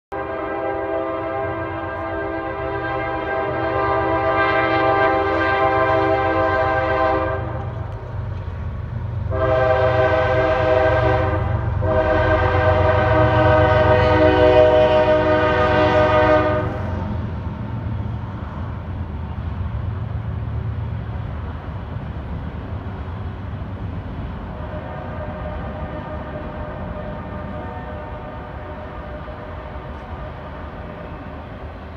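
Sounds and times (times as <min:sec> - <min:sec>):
train horn blasts: 0:00.1 - 0:07.9, 0:09.3 - 0:17.1, 0:24.5 - 0:31.5
low train rumble: 0:00.1 - 0:31.9.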